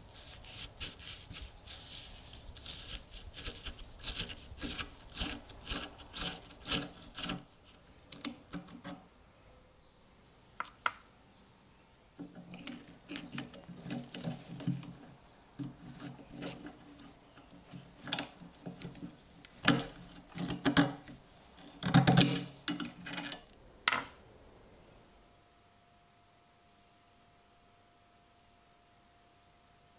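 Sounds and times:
metal scraping and grating: 0:00.0 - 0:09.0.

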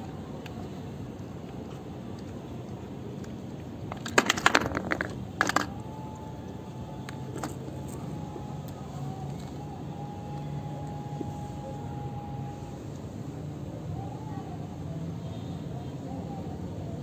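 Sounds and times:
plastic parts clicking: 0:03.9 - 0:05.8.

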